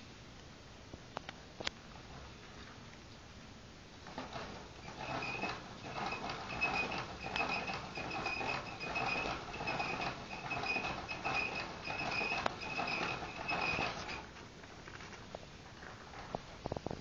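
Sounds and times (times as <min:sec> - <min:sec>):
hamster scratching in bedding: 0:04.1 - 0:15.2.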